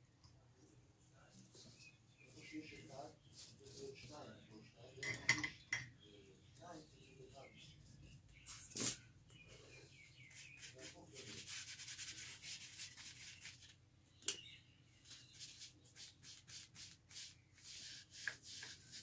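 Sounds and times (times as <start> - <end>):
paintbrush scratching on paper: 1.6 - 4.4, 10.2 - 13.7, 15.0 - 19.0.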